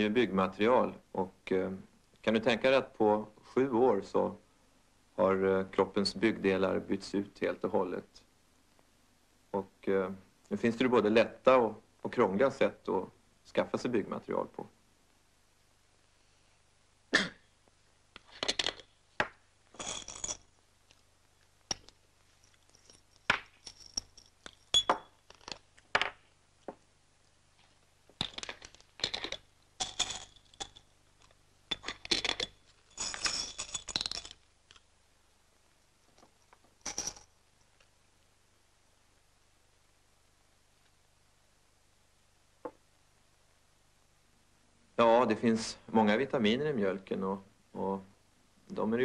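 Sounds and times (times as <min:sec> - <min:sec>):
pills rattling: 0:21.7 - 0:25.7, 0:28.2 - 0:34.8, 0:36.8 - 0:37.3
glass jars clinking: 0:22.7 - 0:26.2, 0:31.7 - 0:34.4.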